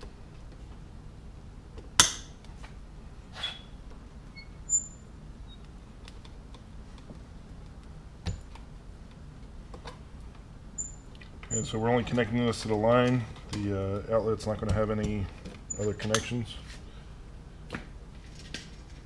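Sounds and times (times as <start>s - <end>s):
wire cutters snapping wire: 2.0s - 2.3s.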